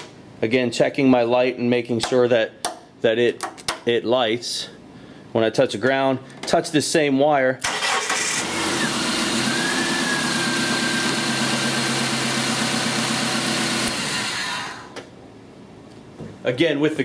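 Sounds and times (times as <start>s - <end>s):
car engine starting and running: 7.6s - 14.9s.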